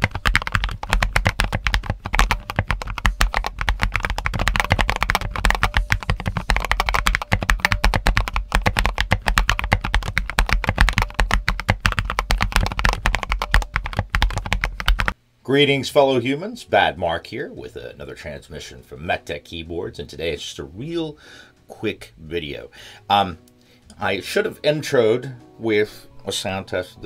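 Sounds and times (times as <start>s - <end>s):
mechanical keyboard typing: 0.0s - 15.2s.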